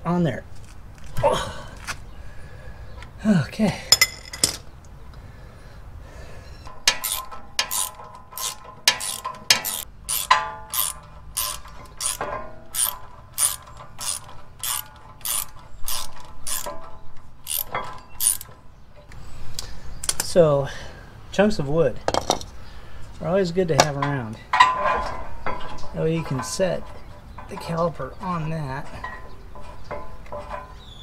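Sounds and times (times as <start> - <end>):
socket ratchet clicking: 6.7 - 16.8, 17.4 - 18.5.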